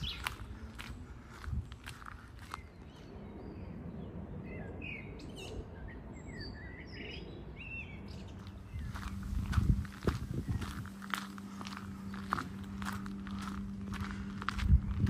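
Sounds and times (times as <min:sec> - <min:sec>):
loud low rumble with hum: 0:00.0 - 0:15.0
low background rumble: 0:00.0 - 0:15.0
small birds chirping: 0:00.0 - 0:15.0
footsteps: 0:08.4 - 0:15.0.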